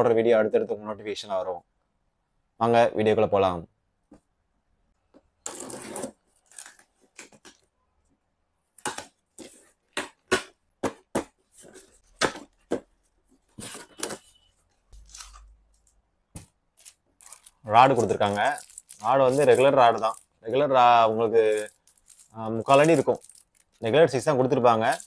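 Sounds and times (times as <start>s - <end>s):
packing tape tearing: 15.0s - 15.5s, 16.8s - 20.4s.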